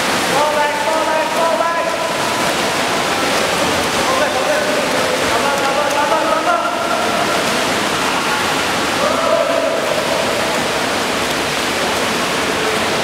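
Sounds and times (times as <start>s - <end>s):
swimmers splashing: 0.0s - 13.0s
people shouting: 9.0s - 10.4s.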